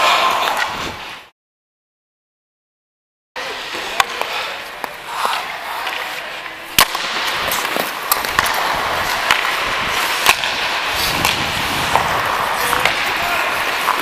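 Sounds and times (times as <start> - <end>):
skate blades scraping ice: 0.0 - 1.3, 3.4 - 14.0
hockey sticks cracking on puck: 3.9 - 14.0.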